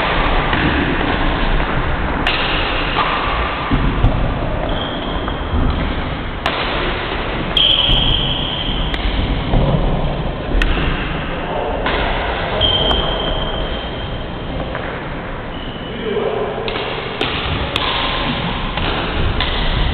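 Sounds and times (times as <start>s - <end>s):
racquet striking shuttlecock: 0.5s - 3.8s, 5.7s - 9.3s, 16.7s - 19.9s
shoe squeaks on hall floor: 4.6s - 5.5s, 7.6s - 8.9s, 12.6s - 14.2s, 15.5s - 16.2s.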